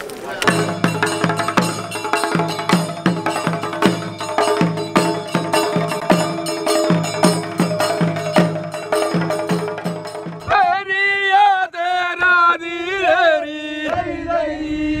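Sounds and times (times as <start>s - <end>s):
steady percussion beat: 0.4s - 10.8s.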